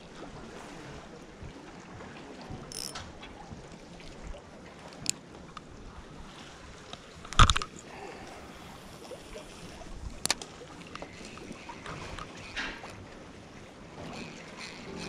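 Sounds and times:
sea water: 0.0s - 15.0s
wind: 0.0s - 15.0s
thin click: 2.7s - 3.1s.

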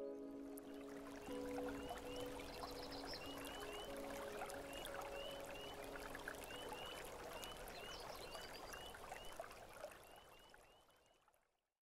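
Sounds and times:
spring peepers chorus: 0.0s - 9.4s
shallow stream rushing: 0.3s - 10.3s.

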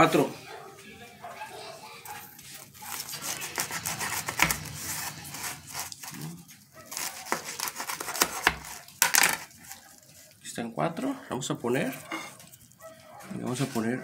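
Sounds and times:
knife crunching through fried crust: 2.5s - 10.4s.

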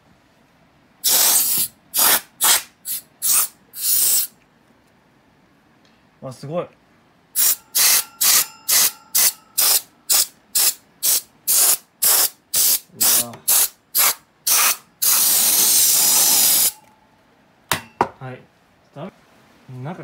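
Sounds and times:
canned air duster hissing blasts: 1.0s - 4.3s, 7.4s - 16.8s.

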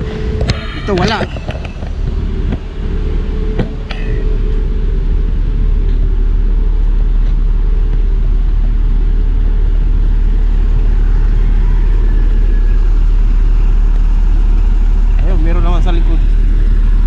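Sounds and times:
diesel bus engine idling: 0.0s - 17.0s.

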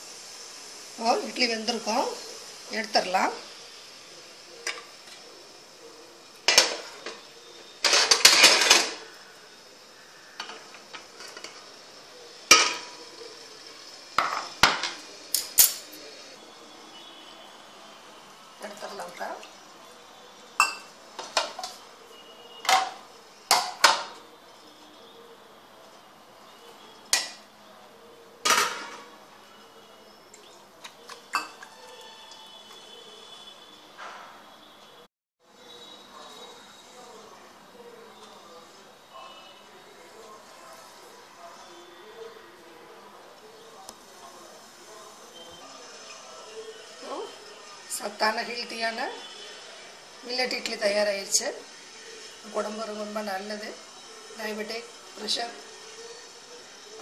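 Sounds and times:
metal lid and plates clanking: 7.8s - 9.0s, 28.4s - 29.1s.

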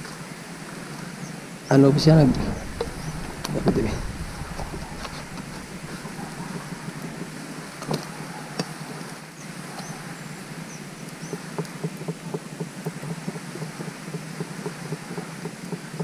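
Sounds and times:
plastic sheet flapping: 1.9s - 8.1s.

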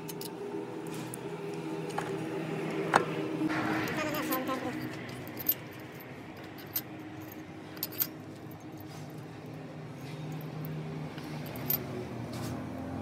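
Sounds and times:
low steady background hum: 0.0s - 12.1s
metallic clinks of tools: 3.8s - 11.9s.

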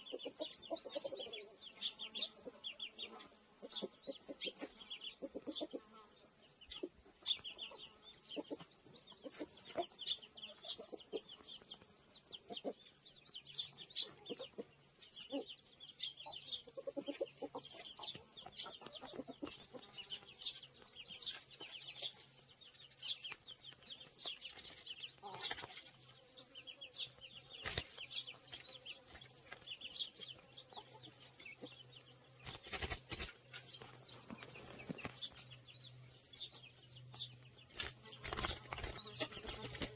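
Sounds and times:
chickens clucking: 0.0s - 39.9s
bird wings flapping in cage: 32.4s - 33.4s, 37.7s - 39.9s.

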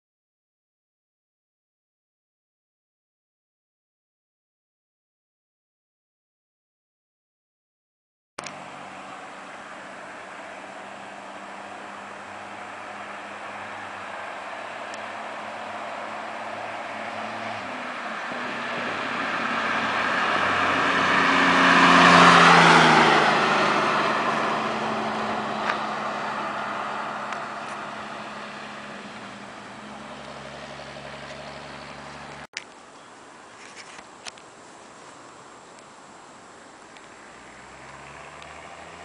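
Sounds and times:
car driving past: 8.4s - 32.5s, 37.0s - 39.0s.

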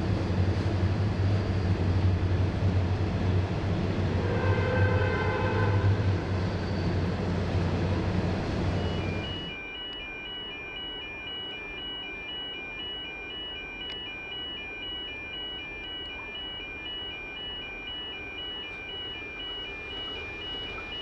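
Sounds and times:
freight train rumble: 0.0s - 9.5s
two-tone electronic warning beeps: 8.6s - 21.0s.

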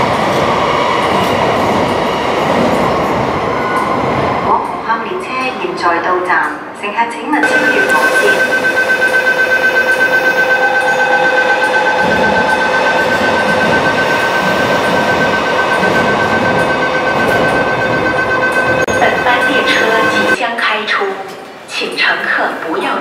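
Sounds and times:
electric train rumbling: 0.0s - 20.4s
steady high-pitched tone: 7.4s - 20.4s.

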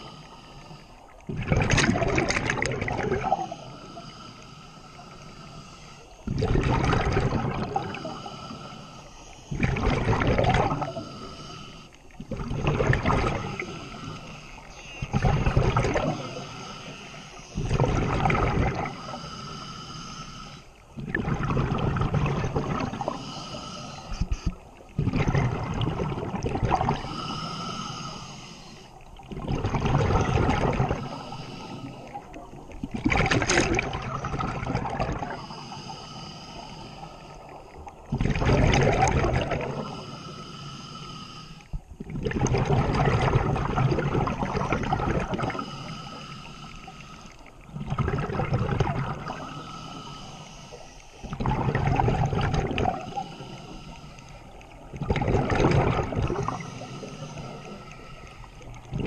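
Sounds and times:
exhaled bubbles underwater: 0.0s - 4.2s, 5.8s - 40.3s, 41.7s - 59.0s
regulator hiss: 49.4s - 51.4s.

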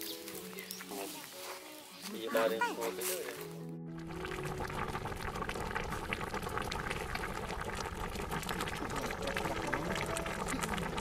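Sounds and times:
thick sauce bubbling and popping: 4.0s - 11.0s.

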